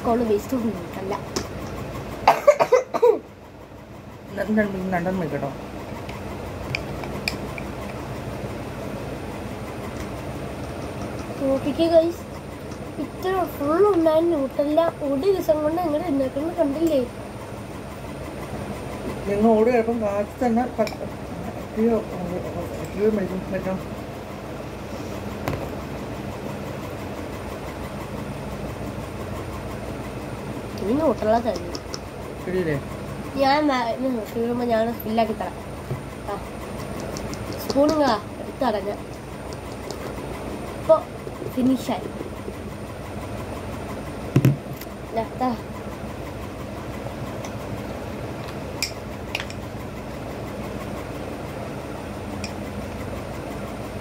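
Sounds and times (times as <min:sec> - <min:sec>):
broad background noise: 0:00.0 - 0:54.0
steady low hum: 0:00.0 - 0:54.0.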